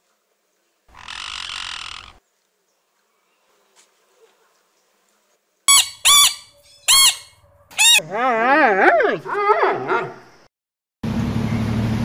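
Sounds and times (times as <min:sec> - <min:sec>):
harsh animal call: 0:00.9 - 0:02.2, 0:05.7 - 0:10.0
panda squealing calls: 0:05.7 - 0:08.0.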